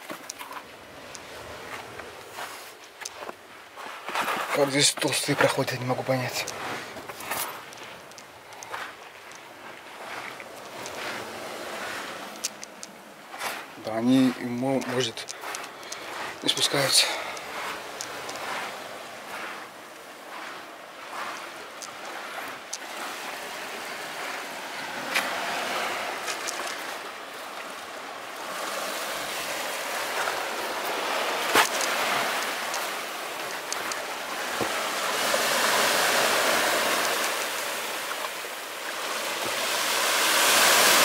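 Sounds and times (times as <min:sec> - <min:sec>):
footsteps on rock path: 0:00.0 - 0:23.2, 0:28.4 - 0:34.8
surf hiss: 0:00.0 - 0:41.0.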